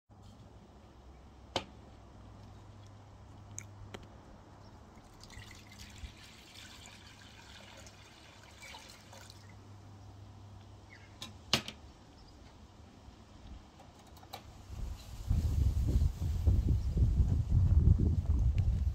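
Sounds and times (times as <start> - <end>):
water pouring into a bowl: 5.0 - 9.6.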